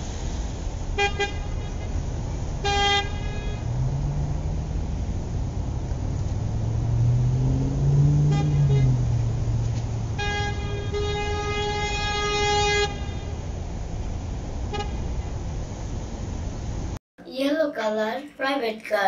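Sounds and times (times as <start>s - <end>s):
car engine running: 0.0s - 17.0s
car horn toots: 1.0s - 3.8s, 8.1s - 13.5s, 14.7s - 15.3s.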